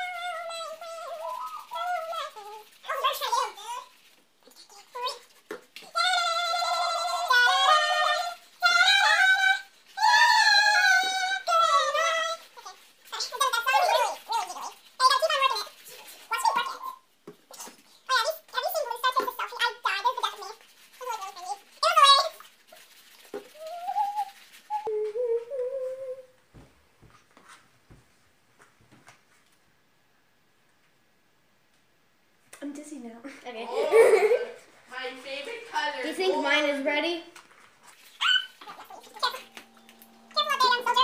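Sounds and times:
high-pitched voice singing: 0.0s - 22.4s, 23.4s - 26.3s, 38.2s - 41.0s
person humming: 23.6s - 26.4s.

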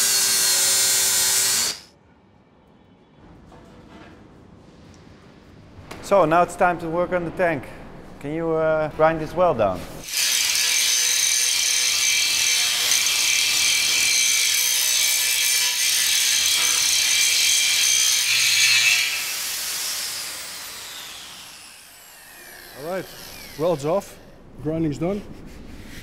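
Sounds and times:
angle grinder grinding steel: 0.0s - 1.9s, 10.0s - 24.0s.

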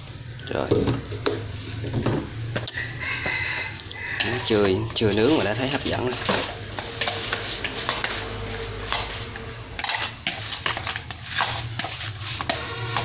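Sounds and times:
chopsticks clattering in a bowl: 4.2s - 8.2s, 9.8s - 13.0s.

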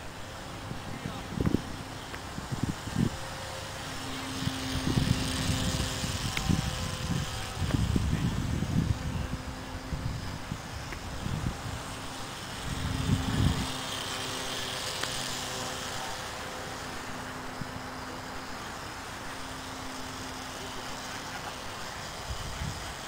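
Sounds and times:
wind gusts on microphone: 0.0s - 16.2s, 22.1s - 23.0s
propeller motor humming: 0.0s - 23.0s.

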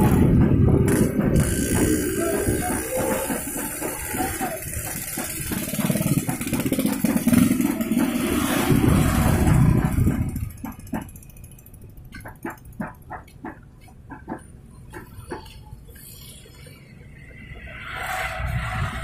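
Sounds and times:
motorcycle engine running: 0.0s - 11.6s
cart rattling: 0.0s - 16.9s.

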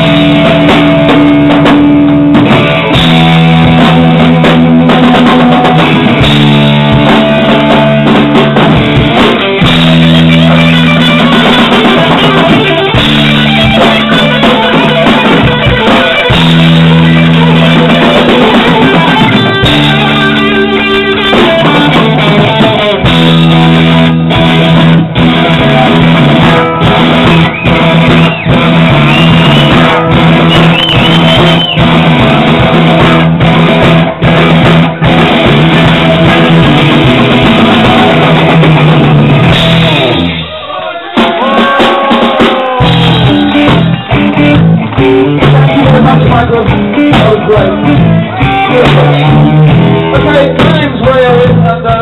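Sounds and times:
drum kit: 0.0s - 52.0s
electric guitars: 0.0s - 52.0s.

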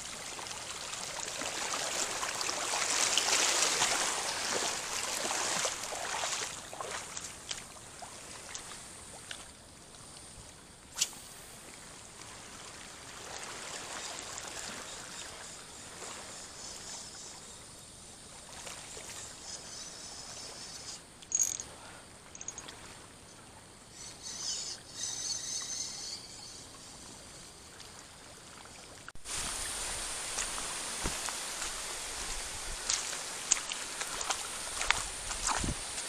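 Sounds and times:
seawater lapping over rocks: 0.0s - 9.4s, 27.7s - 36.0s
water splashes: 0.0s - 9.5s, 11.1s - 16.3s, 27.6s - 36.0s.

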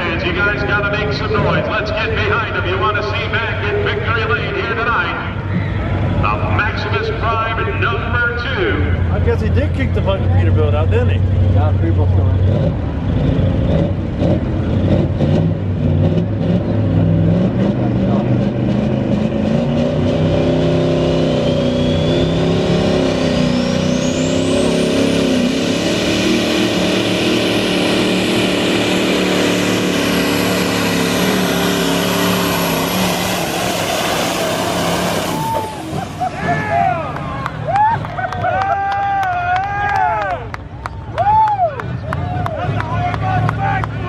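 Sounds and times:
diesel truck engine at full power: 0.0s - 44.0s
high turbo whistle: 21.1s - 26.0s.

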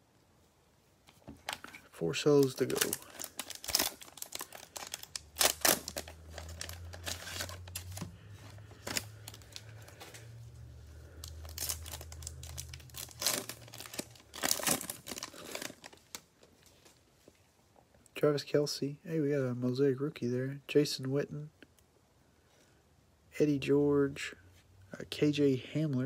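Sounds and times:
faint low hum: 0.0s - 26.0s
plastic wrapper crinkling: 1.4s - 17.1s.

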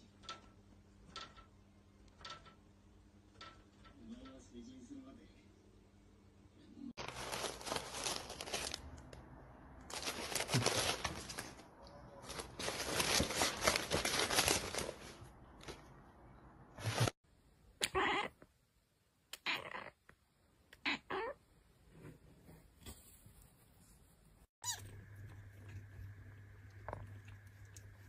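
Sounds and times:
cardboard box rustling: 7.0s - 8.8s, 9.9s - 11.6s, 12.3s - 15.1s
cat meowing: 17.8s - 18.4s, 19.4s - 20.0s, 20.8s - 21.4s, 24.6s - 24.9s.

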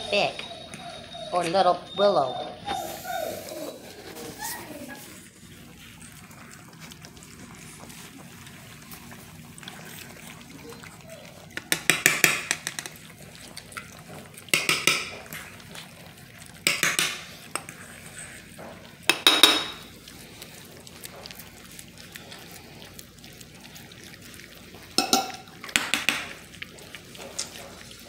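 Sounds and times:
puppies smacking and lapping: 0.0s - 28.0s
metal pan clinking: 19.1s - 19.8s, 25.0s - 26.1s.

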